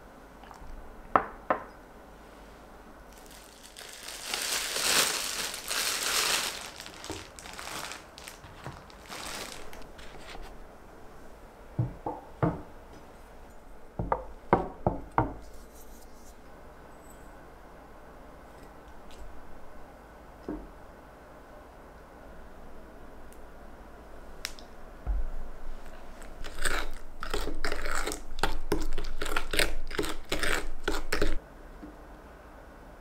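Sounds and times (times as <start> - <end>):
plastic bag crinkling: 3.1 - 10.6.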